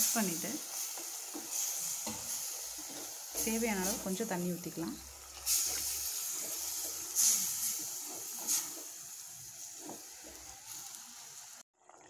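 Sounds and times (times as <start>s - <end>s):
hot gravy hissing: 0.0s - 11.6s
ladle stirring gravy: 0.6s - 11.0s.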